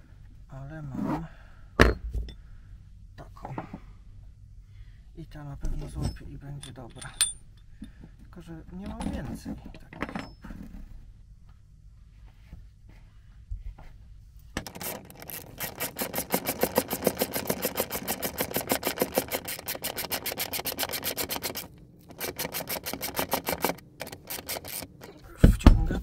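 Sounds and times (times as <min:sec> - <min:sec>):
ratchet wrench clicking: 0:14.6 - 0:25.1.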